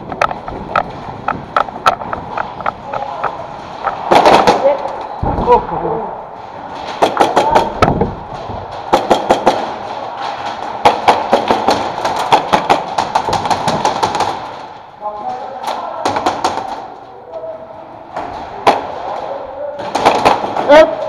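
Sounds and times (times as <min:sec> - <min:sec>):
rapid replica gun shots: 0:03.8 - 0:04.7, 0:08.7 - 0:14.8, 0:19.8 - 0:20.7.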